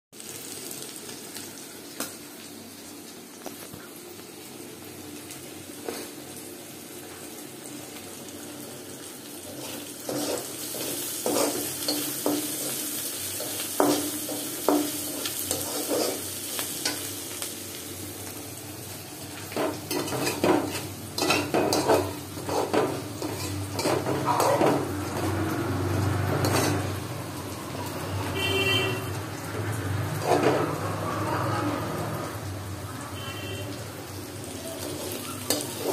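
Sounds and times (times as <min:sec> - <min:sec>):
onions sizzling in oil: 0:00.2 - 0:35.9
spatula scraping a pan: 0:09.4 - 0:17.0, 0:19.5 - 0:25.4, 0:26.3 - 0:26.9, 0:30.2 - 0:30.8, 0:34.8 - 0:35.9
spatula stirring curry: 0:09.5 - 0:12.8, 0:19.6 - 0:24.8.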